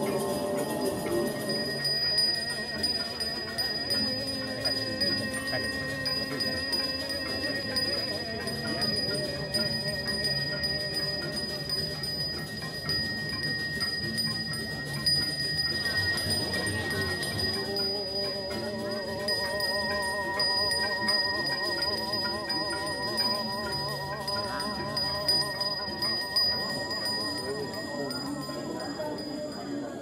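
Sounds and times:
small handbell ringing: 0.0 - 30.0
voices chanting: 0.0 - 30.0.

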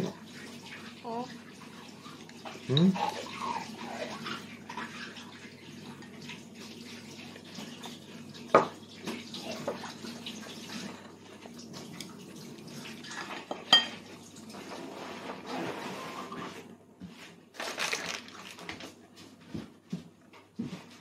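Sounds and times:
water running from tap: 0.0 - 14.9
tableware clinking: 13.3 - 14.0.

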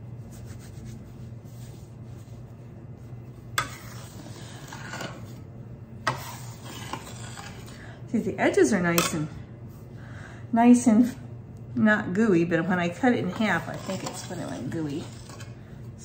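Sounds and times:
steady low hum: 0.0 - 16.0
metal scraper scraping on stone: 3.6 - 5.3, 6.0 - 7.8, 13.2 - 15.6.

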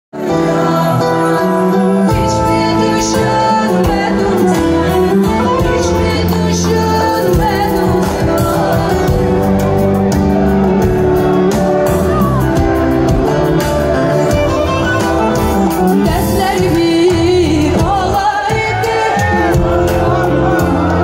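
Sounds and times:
woman singing: 0.2 - 10.0, 15.6 - 21.0
small band playing: 0.2 - 21.0.

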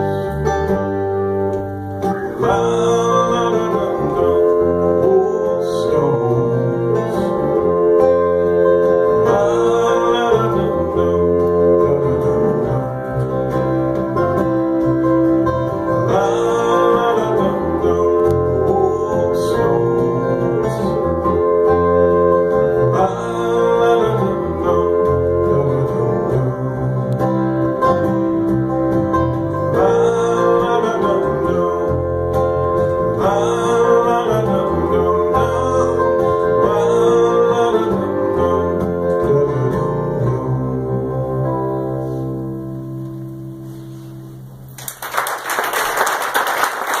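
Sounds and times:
acoustic guitar: 0.0 - 45.0
man singing: 2.2 - 13.7, 16.0 - 21.6, 22.7 - 27.3, 29.7 - 41.8
audience applause: 44.8 - 47.0.

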